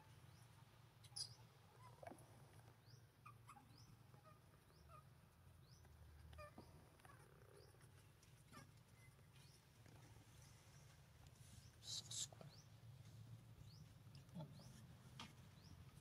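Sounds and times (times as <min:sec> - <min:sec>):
baby monkey squeaking: 0:01.0 - 0:01.9.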